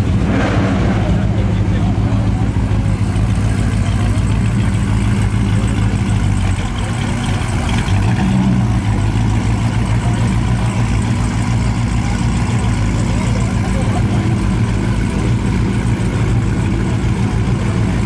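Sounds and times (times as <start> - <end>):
car engine idling: 0.0 - 18.0.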